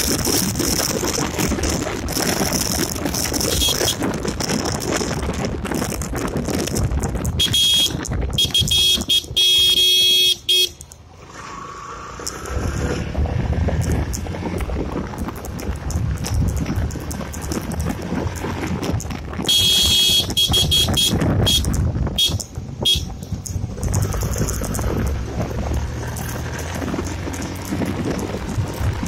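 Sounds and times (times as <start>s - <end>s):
wind rush on microphone: 0.0s - 10.2s, 11.4s - 29.0s
motorcycle engine rumble: 0.0s - 29.0s
vehicle horn honks: 7.4s - 10.8s, 19.5s - 23.1s.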